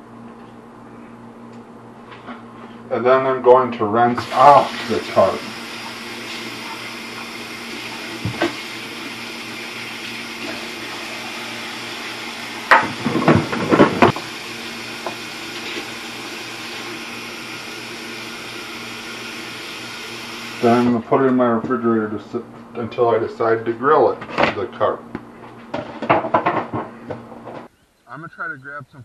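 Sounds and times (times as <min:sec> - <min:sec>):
faucet running into sink: 0:04.2 - 0:20.8
knocks and clatter in sink: 0:12.7 - 0:14.1, 0:25.8 - 0:27.2.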